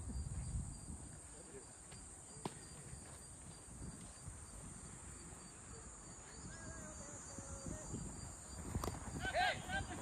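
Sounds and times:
high-pitched insect buzz: 0.0 - 10.0.

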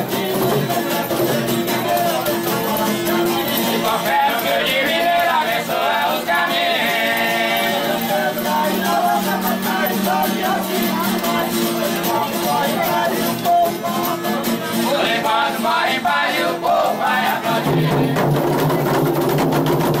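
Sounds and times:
tambourines and drums: 0.0 - 15.0, 17.1 - 20.0
group singing: 0.0 - 20.0.

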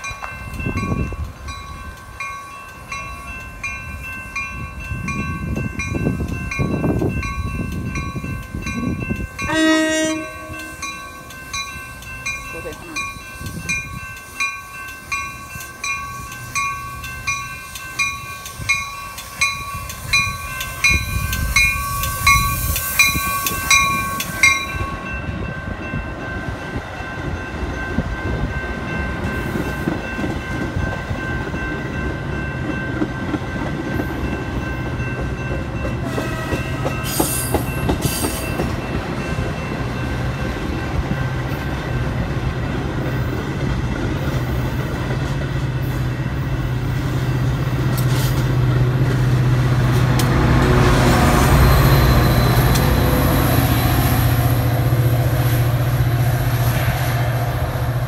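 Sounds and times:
crossing bell ringing: 0.0 - 43.6, 50.5 - 56.3
train wheels clattering: 28.0 - 42.0.

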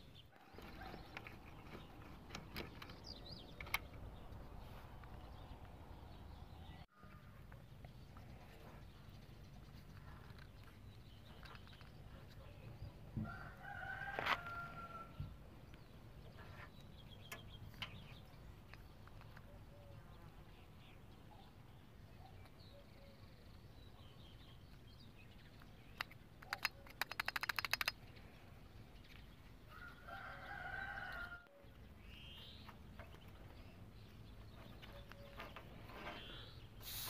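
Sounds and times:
rooster crowing: 13.2 - 15.1, 29.7 - 31.6
rapid sharp clicks: 26.0 - 28.0.

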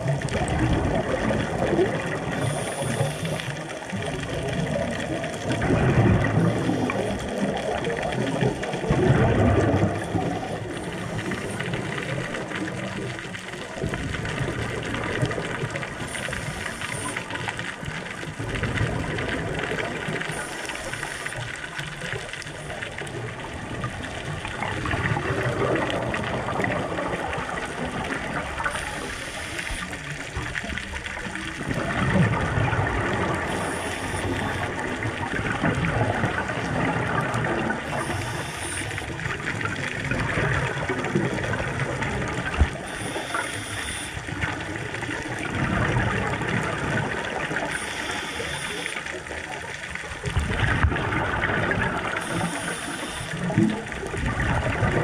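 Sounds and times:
gurgling exhaled bubbles: 0.0 - 55.0
regulator inhale hiss: 2.4 - 3.6, 28.6 - 30.0, 33.5 - 34.7, 38.0 - 39.1, 42.8 - 44.3, 47.7 - 49.2, 52.2 - 53.6.

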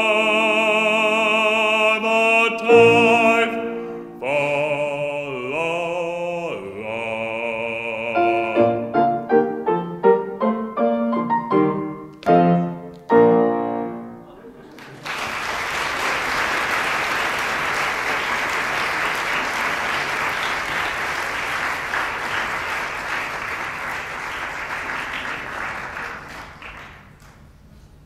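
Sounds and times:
audience applauding: 14.7 - 27.5.

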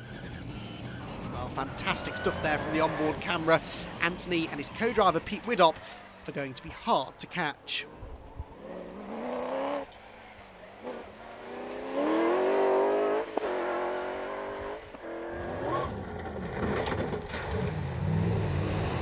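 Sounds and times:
rally car engine accelerating: 8.5 - 19.0.

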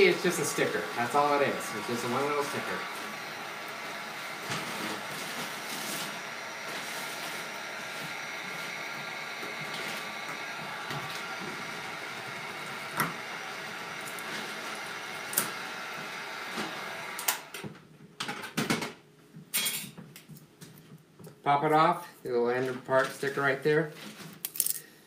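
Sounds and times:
heat gun fan whirring: 0.0 - 17.8.

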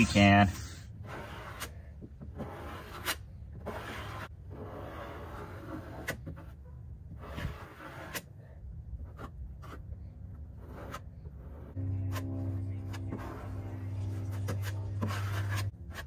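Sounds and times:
steady low hum: 9.9 - 16.0
spreader scraping fiberglass: 10.5 - 16.0.

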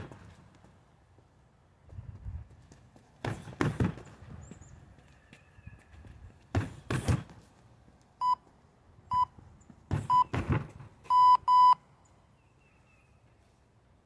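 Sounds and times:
kicks thudding on kick bag: 3.2 - 4.1, 6.5 - 7.4, 9.9 - 10.9.

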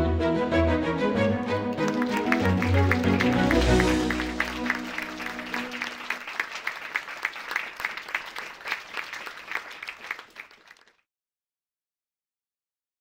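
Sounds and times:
held music notes: 0.0 - 6.2
audience applauding: 1.4 - 11.0.

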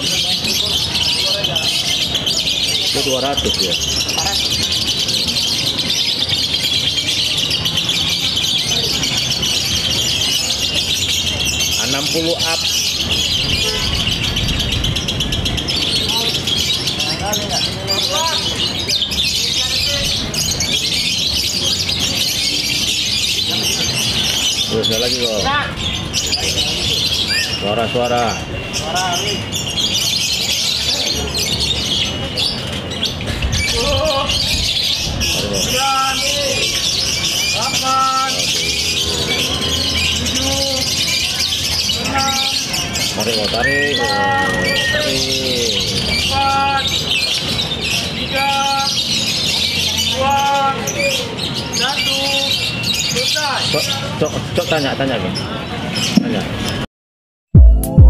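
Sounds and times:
birds chirping rapidly: 0.0 - 56.9
man's voice: 43.3 - 46.9.

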